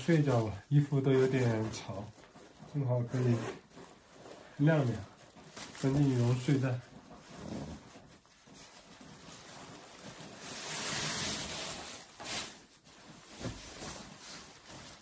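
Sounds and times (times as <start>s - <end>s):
sleeping bag rustling and swishing: 0.0s - 15.0s.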